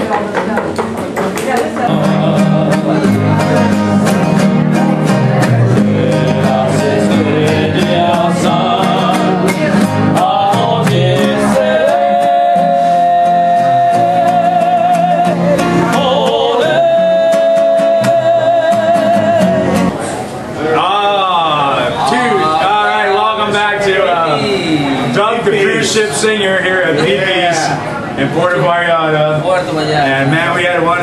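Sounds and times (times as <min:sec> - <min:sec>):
strummed acoustic guitar: 0:00.0 - 0:20.5
man singing: 0:01.9 - 0:20.0.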